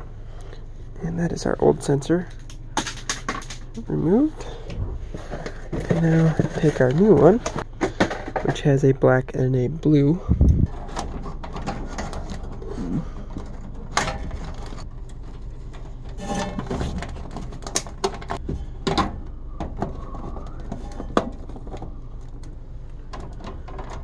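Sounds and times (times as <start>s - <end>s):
steady low hum: 0.0s - 24.0s
wires rustling: 10.3s - 24.0s.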